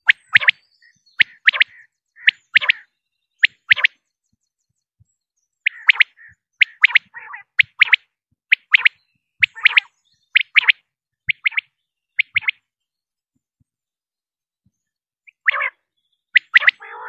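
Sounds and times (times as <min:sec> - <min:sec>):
quail calling: 0:00.0 - 0:04.0, 0:05.6 - 0:12.6, 0:15.3 - 0:17.0.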